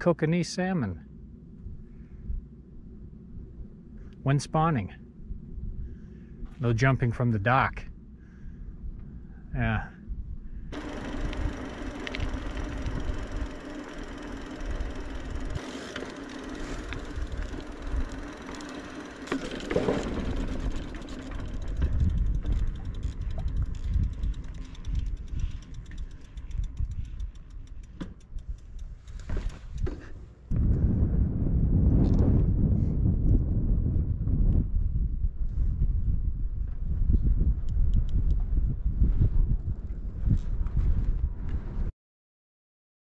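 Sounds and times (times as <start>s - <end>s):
steady hum: 0.4s - 31.3s
wind rumbling on microphone: 1.2s - 15.6s, 19.6s - 41.9s
bike tyre noise: 10.6s - 31.0s
fast even ticking: 10.7s - 29.9s.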